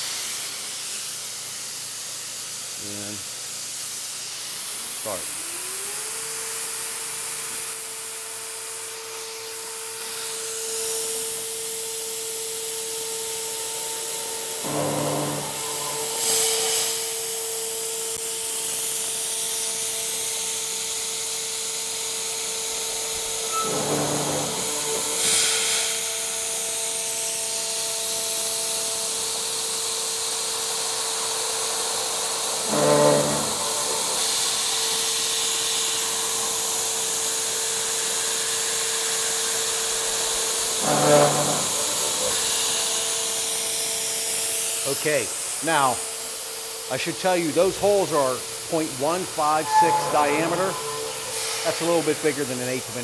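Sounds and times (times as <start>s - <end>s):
router spindle whine: 14.0s - 17.4s, 22.5s - 25.5s, 32.5s - 36.8s, 40.1s - 43.2s, 49.0s - 53.0s
rough metal cutting bursts: 14.5s - 17.2s, 23.2s - 25.8s, 32.6s - 34.9s, 40.3s - 42.9s, 49.0s - 52.9s
compressed air hissing: 14.6s - 17.3s, 23.5s - 25.8s, 32.4s - 35.0s.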